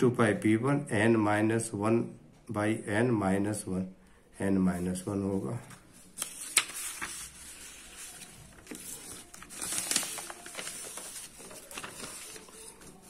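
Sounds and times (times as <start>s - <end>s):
paper rustling and crinkling: 5.6s - 13.0s.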